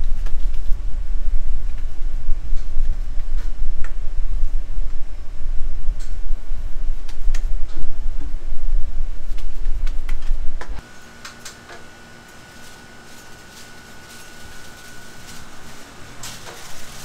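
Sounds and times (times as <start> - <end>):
faint hum with high tone: 0.0 - 17.0
mixing machine rumbling: 0.0 - 17.0.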